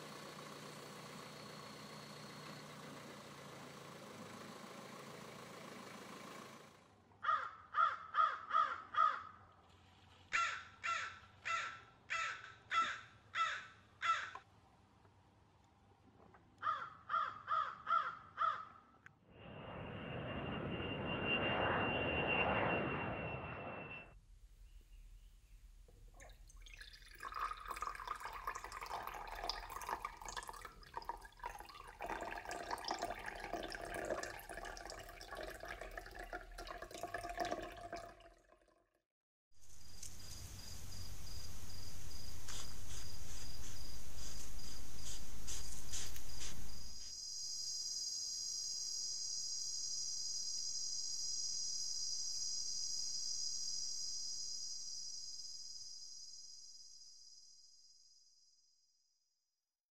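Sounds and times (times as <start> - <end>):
dripping watery sound: 25.9 - 38.7
insects chirping: 26.2 - 36.7, 39.6 - 58.8
hiss with thin high tone: 39.6 - 58.6.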